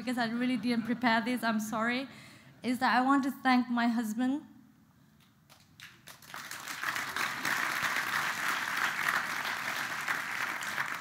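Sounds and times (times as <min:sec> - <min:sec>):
audience applause: 0:05.8 - 0:11.0.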